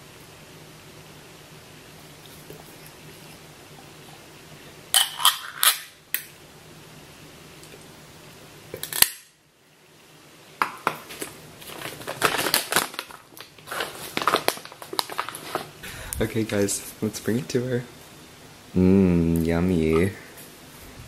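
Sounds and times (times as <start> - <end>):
plastic snack bag crinkling: 11.1 - 15.8.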